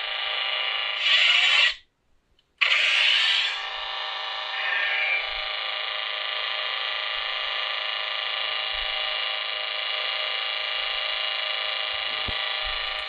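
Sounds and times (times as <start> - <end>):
lightsaber idle hum: 0.0 - 1.7, 2.6 - 13.0.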